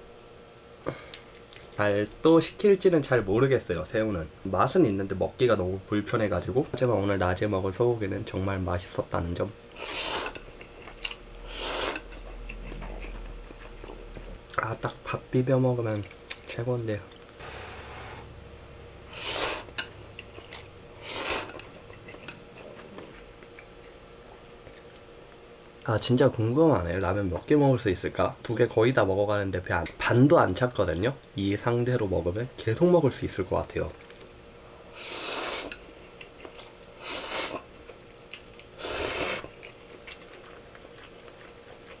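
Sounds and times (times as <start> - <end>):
person slurping noodles: 9.8 - 10.4, 11.4 - 12.1, 19.1 - 19.7, 21.0 - 21.6, 35.0 - 35.7, 37.0 - 37.6, 38.8 - 39.5
quiet chewing: 9.9 - 15.0, 15.8 - 17.4, 19.7 - 25.9, 35.6 - 37.0, 37.6 - 38.8, 39.4 - 42.0
chewing clicks: 39.5 - 42.0.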